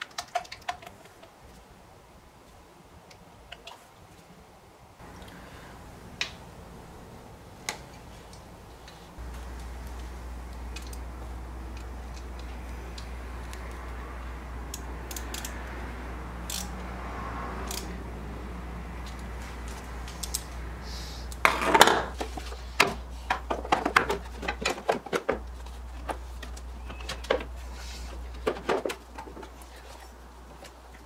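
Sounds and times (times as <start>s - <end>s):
low steady hum: 4.4s - 24.8s
irregular clicks and knocks: 21.3s - 27.6s
hand tools clattering: 21.4s - 29.7s.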